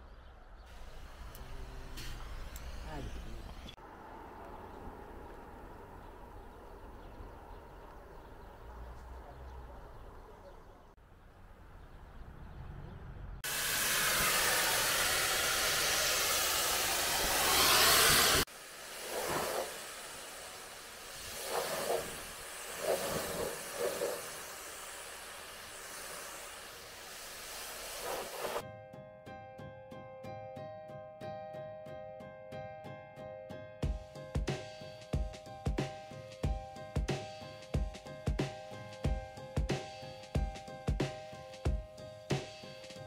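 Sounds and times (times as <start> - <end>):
pressure washer jet hissing: 13.4 - 28.6.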